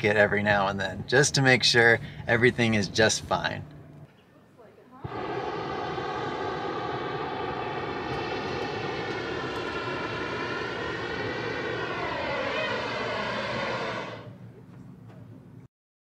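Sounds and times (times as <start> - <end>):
propane burner roaring: 5.0 - 14.4.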